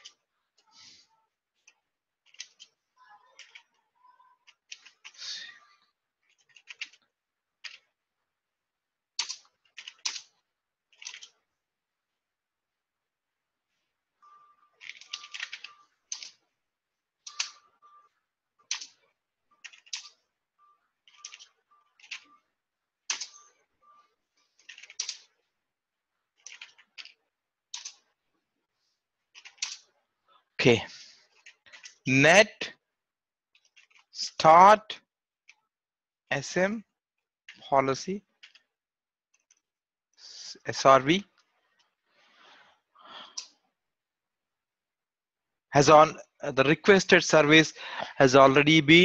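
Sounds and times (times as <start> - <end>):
keyboard typing: 1.6 - 5.7, 6.3 - 7.9, 9.2 - 11.4, 14.2 - 16.4, 17.2 - 25.4, 26.4 - 28.2
computer keyboard typing: 10.9 - 11.4, 14.8 - 16.4, 17.2 - 18.0, 18.6 - 19.0, 19.6 - 20.2, 21.0 - 22.4, 23.1 - 23.6, 26.4 - 27.2.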